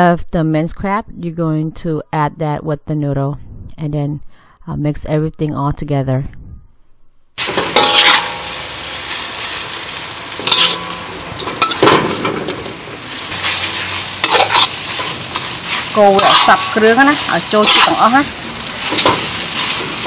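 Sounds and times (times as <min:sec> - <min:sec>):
noodles sizzling in a wok: 0:07.4 - 0:20.0
utensils scraping a wok: 0:07.4 - 0:20.0.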